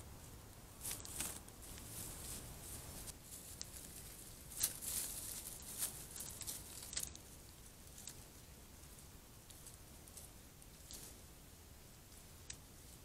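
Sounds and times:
microphone hiss: 0.0 - 13.0
deer stepping through dry leaves: 0.8 - 8.2.

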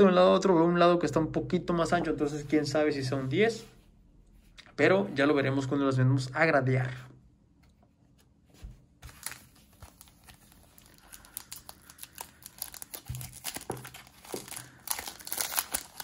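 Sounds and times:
foil wrapper crinkling: 9.1 - 16.0.

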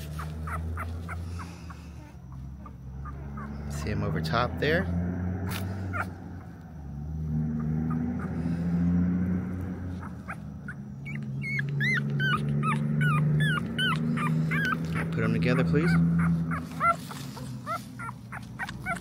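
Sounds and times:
puppy crying squeaks: 0.0 - 3.9, 5.9 - 6.1, 9.9 - 19.0.

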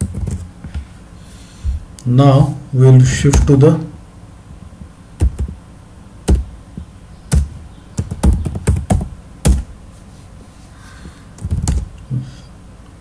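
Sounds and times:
keyboard typing: 7.3 - 9.6.

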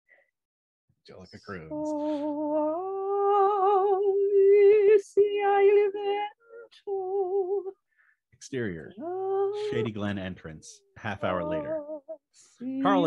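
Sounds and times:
woman crooning wordless dirge: 1.7 - 4.6, 9.0 - 9.9, 11.4 - 13.0
woman breathing: 7.8 - 8.2.

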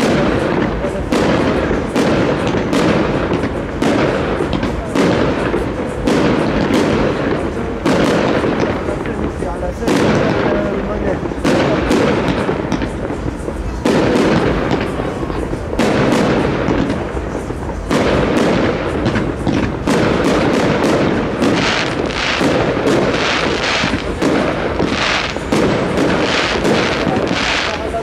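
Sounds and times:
firework shells bursting: 0.0 - 28.0.

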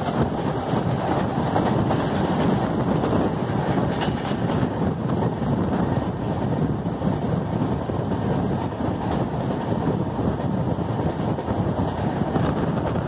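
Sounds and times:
train wheels rumbling on track: 0.0 - 13.0
wind buffeting microphone: 0.0 - 13.0.

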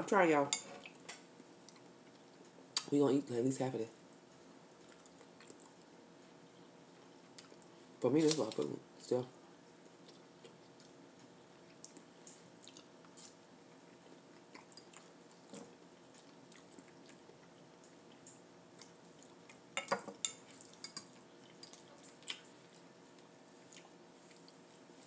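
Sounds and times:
faint steady hum: 0.0 - 25.0
chewing: 4.8 - 5.9, 9.9 - 19.7, 20.3 - 25.0.

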